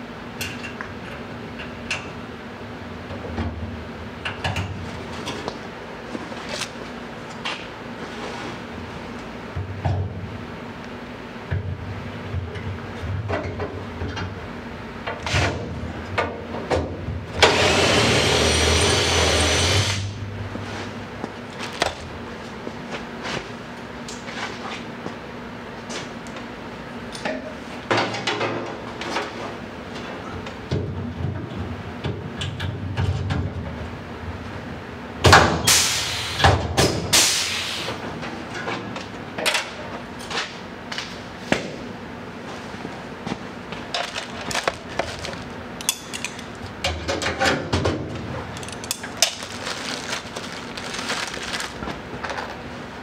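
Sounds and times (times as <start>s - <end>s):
power drill running: 17.4s - 20.0s.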